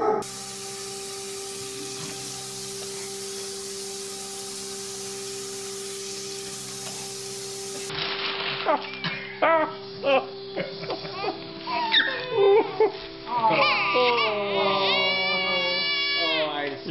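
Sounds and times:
faucet water splashing into sink: 0.2 - 7.9
steady hum: 0.2 - 8.0.

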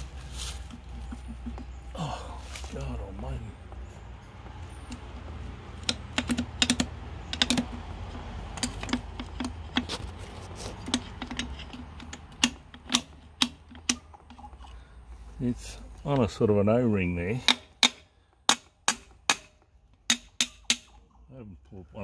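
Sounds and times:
small metallic clicks of hand tool: 10.7 - 14.8.

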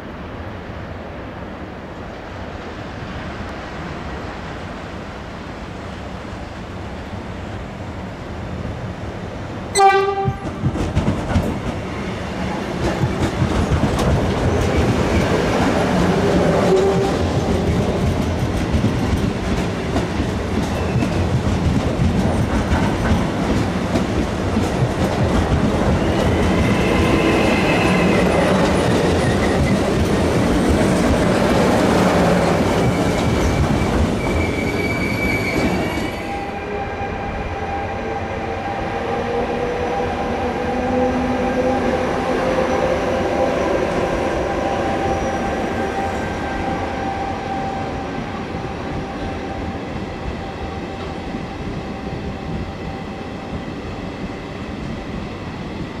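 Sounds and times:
train hum with rising tone: 0.0 - 56.0
train wheels clattering over rail joints: 10.2 - 11.9, 12.7 - 15.4, 16.4 - 26.8, 28.3 - 31.5
high wheel squeals: 32.8 - 36.6.

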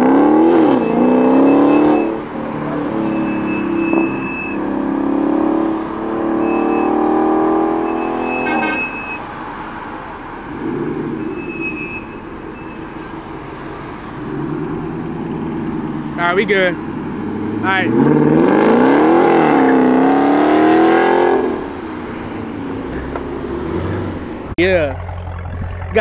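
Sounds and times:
car engine revving and pulling away: 0.0 - 26.0
thin high tone: 7.9 - 9.2
rough engine rumble: 21.4 - 26.0.

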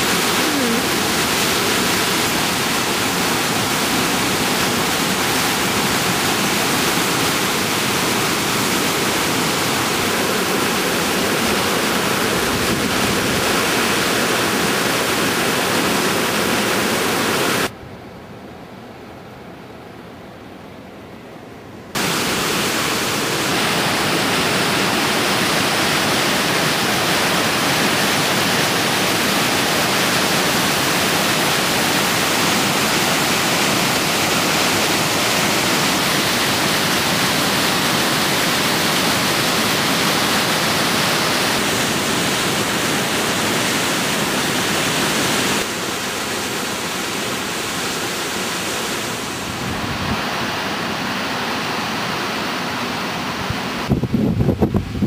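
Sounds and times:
water rushing over rock: 0.0 - 17.7, 22.0 - 54.8.

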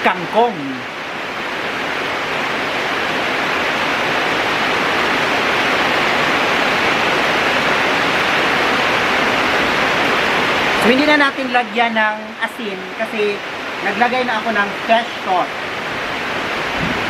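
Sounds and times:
heavy rain pouring: 0.0 - 17.0.

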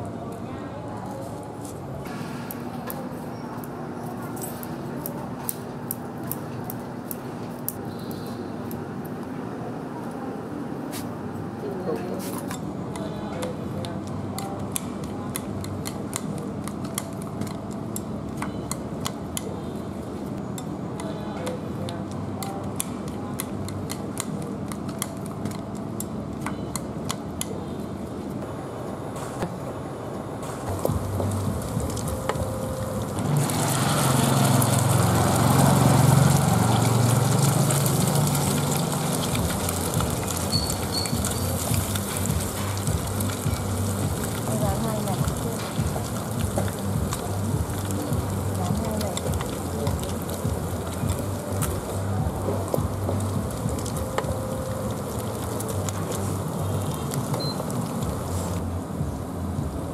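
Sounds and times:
steady low hum: 12.5 - 33.6, 39.3 - 59.9
batter sizzling in hot oil: 30.7 - 52.0, 52.6 - 58.5.

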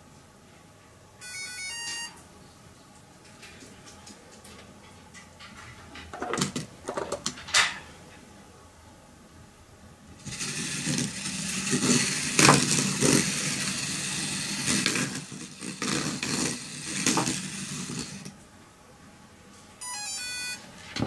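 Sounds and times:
small wheel motors whirring: 10.2 - 18.4.

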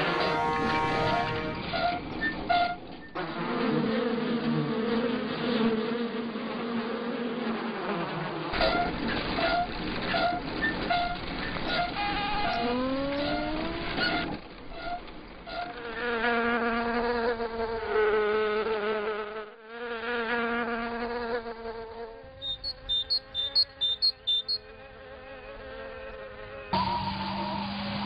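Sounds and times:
cartoon insect buzzing: 19.8 - 26.1
short high beeps: 22.4 - 24.6.

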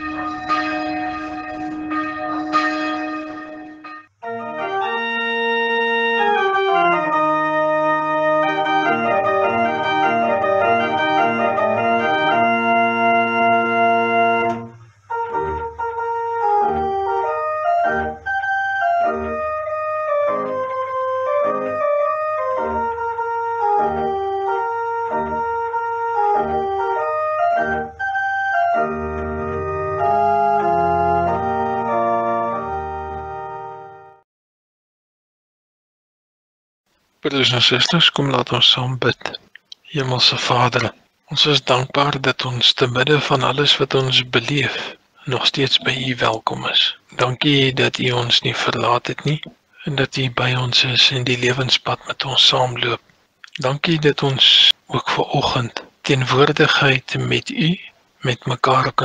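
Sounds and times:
organ music: 0.0 - 34.2, 37.2 - 59.0.

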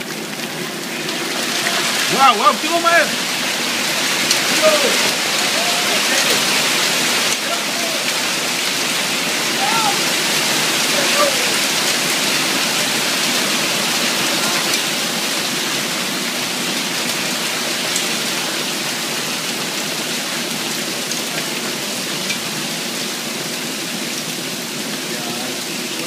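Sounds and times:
hail pelting a lawn: 0.0 - 26.0
hailstones ticking: 0.0 - 26.0.

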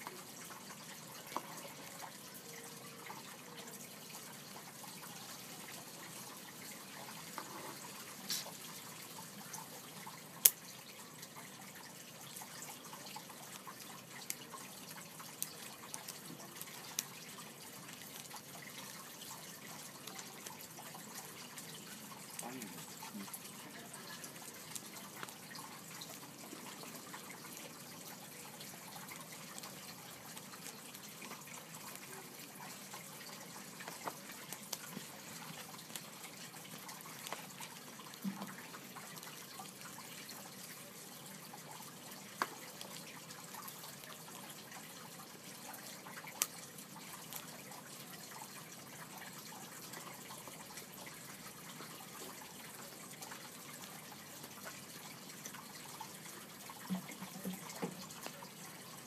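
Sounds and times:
steady hiss: 5.0 - 10.9
parrot chewing plastic pen: 28.5 - 40.4.

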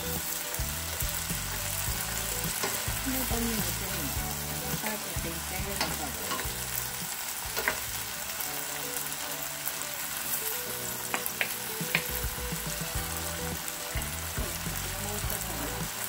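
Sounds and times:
vegetables sizzling in oil: 0.0 - 16.0
spatula tapping pan: 5.7 - 6.5, 11.1 - 12.2.

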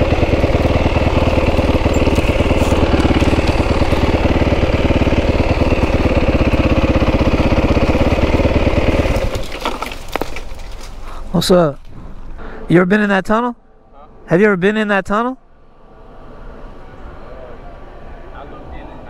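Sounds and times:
motorcycle engine idling: 0.0 - 11.3.

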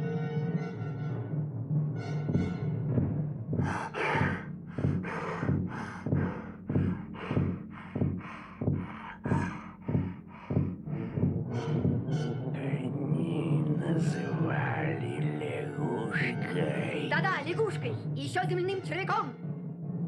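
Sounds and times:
cartoon character panting heavily: 3.6 - 11.4.

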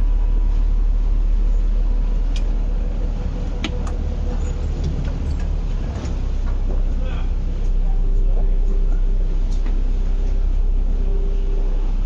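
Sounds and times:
faint constant hum: 0.0 - 12.0
ferry engine drone: 0.0 - 12.0.

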